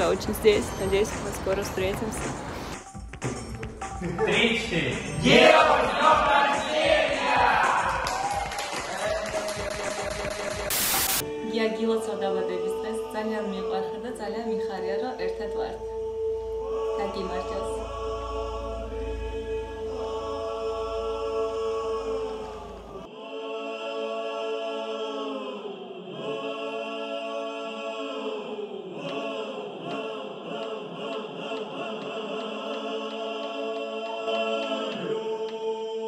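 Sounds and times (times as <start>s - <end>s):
slow choir-like chords: 5.1s - 8.0s, 10.8s - 36.0s
low rumble: 16.2s - 23.0s.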